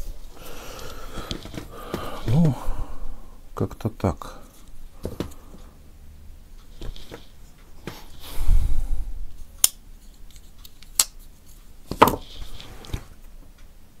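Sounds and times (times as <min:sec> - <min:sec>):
knife handling rumble: 0:00.0 - 0:02.8.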